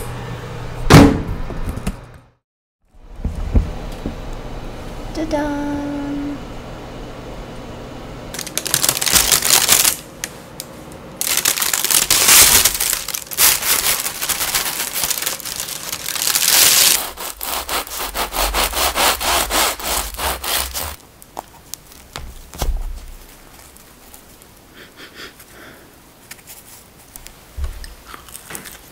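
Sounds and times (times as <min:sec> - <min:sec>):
crisp crust crackling: 0:08.3 - 0:28.9
parchment paper crinkling: 0:08.4 - 0:10.4, 0:11.2 - 0:24.6
rapid scraping strokes: 0:16.2 - 0:21.0.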